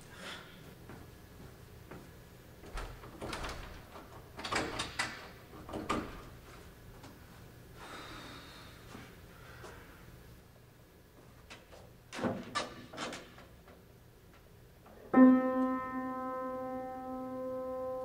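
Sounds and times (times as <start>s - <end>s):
door handle rattling: 2.7s - 6.3s
door latch clicking: 2.8s - 6.2s.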